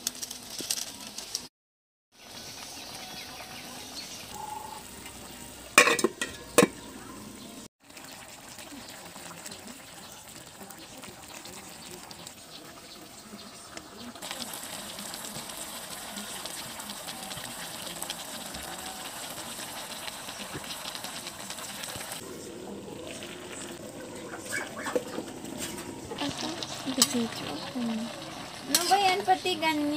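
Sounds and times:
pot simmering with a hiss: 2.2s - 29.9s
faint voices: 8.4s - 29.9s.

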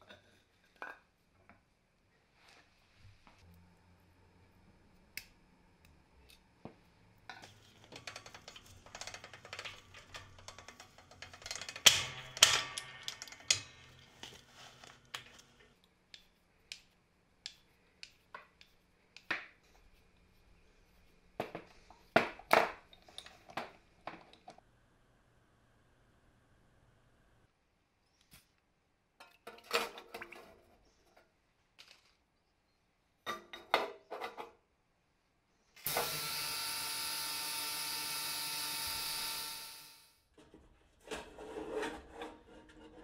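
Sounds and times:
metal parts set on wooden bench: 0.0s - 1.5s, 7.3s - 15.8s, 21.4s - 24.6s
metal parts clicking and clinking: 7.3s - 15.7s
bearings rattling and knocking: 7.3s - 16.3s.

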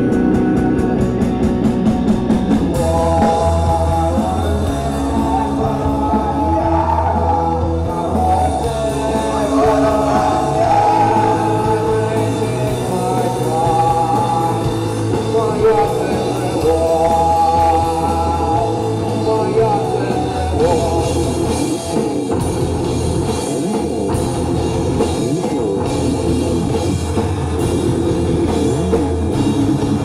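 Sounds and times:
rock band playing live: 0.0s - 30.0s
person singing: 2.7s - 22.4s.

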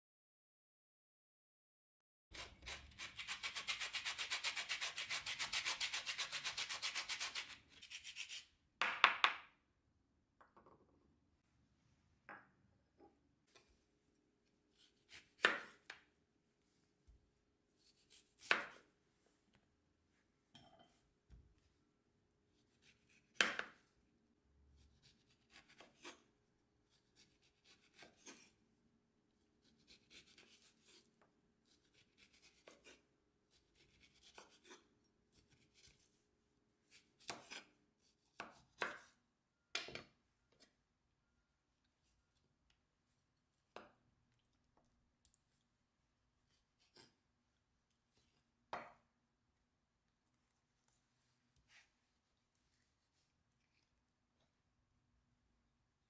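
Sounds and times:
knife slicing on cutting board: 17.8s - 18.8s.

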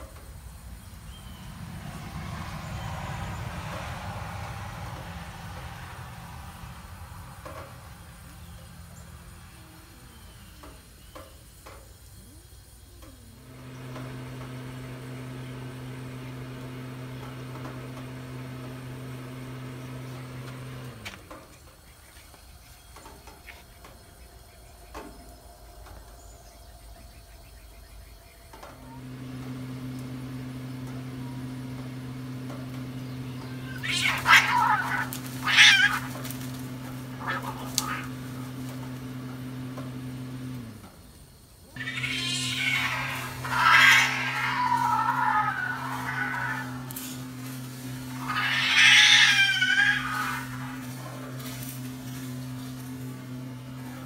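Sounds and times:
cats screeching and hissing: 33.5s - 38.4s, 41.8s - 52.4s
cats yowling: 33.5s - 38.8s, 41.8s - 53.0s.

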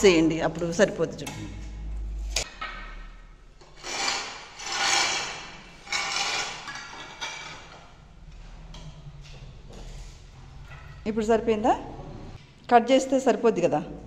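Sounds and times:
ceramic tile scraping on floor: 3.7s - 7.7s.

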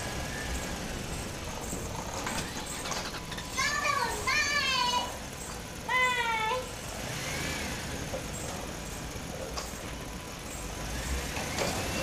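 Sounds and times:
toy wheels rolling on tiles: 0.6s - 6.7s
child's high-pitched call: 3.5s - 5.2s.

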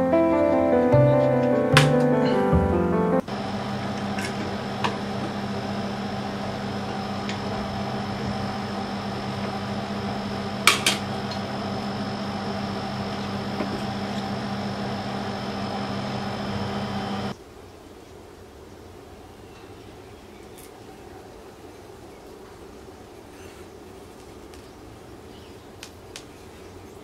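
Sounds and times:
electric furnace humming: 0.0s - 17.4s.

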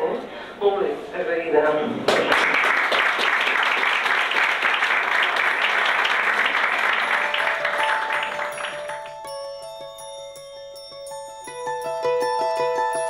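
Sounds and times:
audience applauding: 2.1s - 9.4s
mallet percussion tune: 7.0s - 13.0s.

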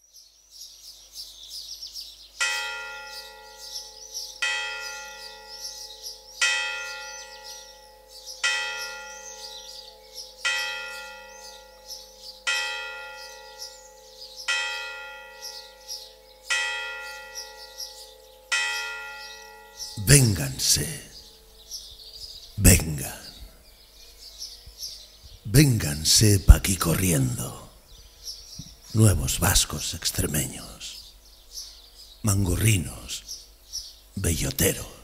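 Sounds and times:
birds chirping: 0.0s - 35.0s
church bell tolling: 2.4s - 21.5s.

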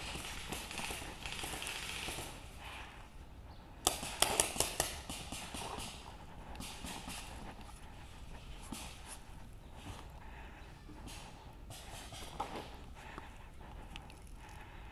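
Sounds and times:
paintball marker cracks: 3.8s - 7.4s.

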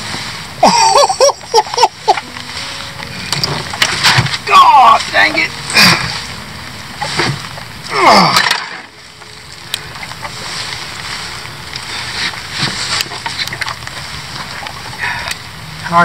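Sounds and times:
man groaning: 7.9s - 8.5s.

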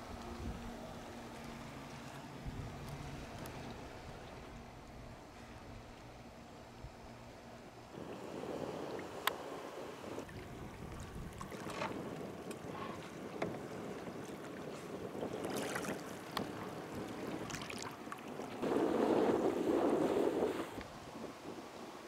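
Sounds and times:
wind on microphone: 0.0s - 1.1s, 2.4s - 6.0s, 7.9s - 22.0s
waves lapping against kayak hull: 0.0s - 21.8s.

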